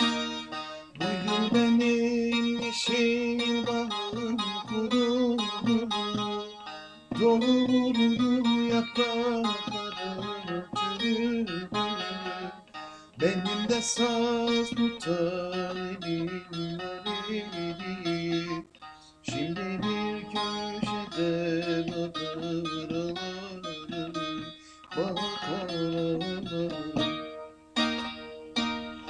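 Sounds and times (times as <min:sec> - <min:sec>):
long-necked lute folk melody: 0:00.0 - 0:29.0.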